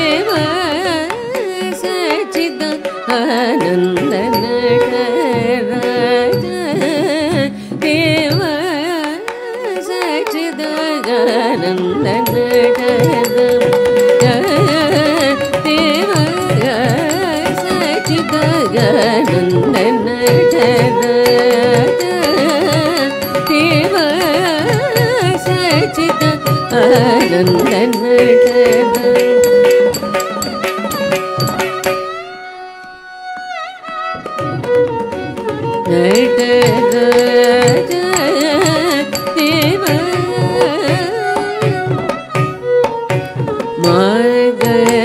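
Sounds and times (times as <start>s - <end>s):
person singing ornamented melody: 0.0s - 32.0s, 35.9s - 41.7s, 43.8s - 45.0s
hand drum strokes: 12.1s - 32.2s, 34.6s - 45.0s.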